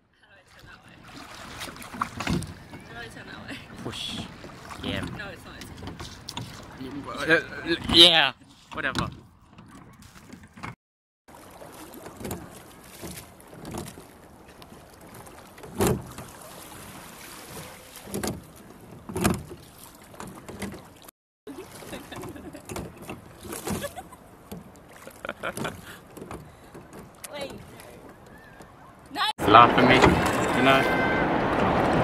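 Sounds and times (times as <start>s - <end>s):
oars knocking in rowlocks: 1.2s - 10.8s, 11.8s - 21.1s, 21.8s - 29.2s.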